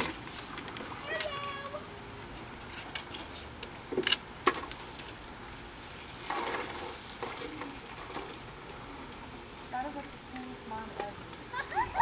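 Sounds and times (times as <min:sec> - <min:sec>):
plastic bag rustling: 0:05.7 - 0:08.4.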